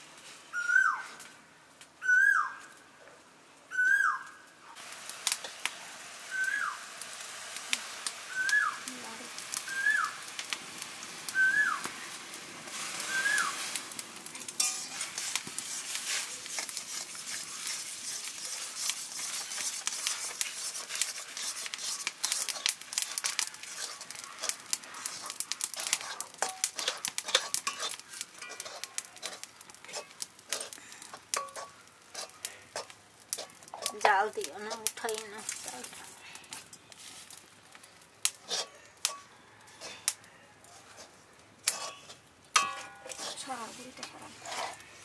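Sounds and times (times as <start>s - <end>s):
water simmering with a hiss: 4.7s - 45.0s
metal spatula scraping a wok: 12.1s - 37.4s, 38.3s - 45.0s.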